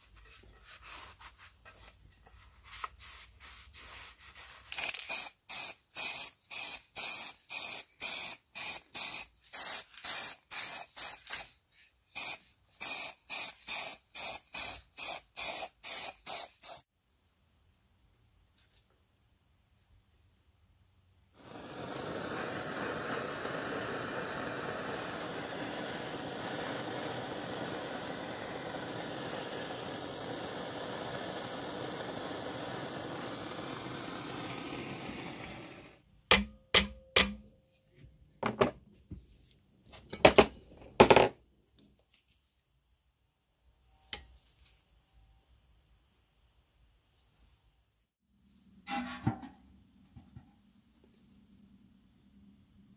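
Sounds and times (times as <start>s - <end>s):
gas torch hissing and whistling: 4.8s - 11.2s, 12.2s - 16.9s, 21.4s - 36.0s.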